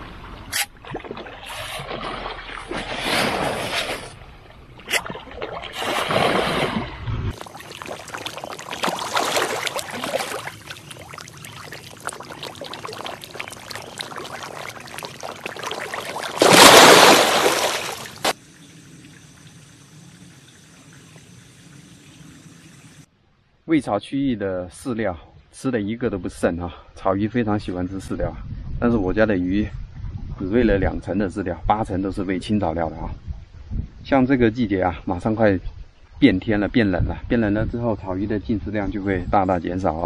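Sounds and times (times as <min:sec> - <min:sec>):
water splashing and trickling: 0:00.0 - 0:23.1
rush of water: 0:04.9 - 0:18.5
faint steady hiss: 0:17.5 - 0:23.7.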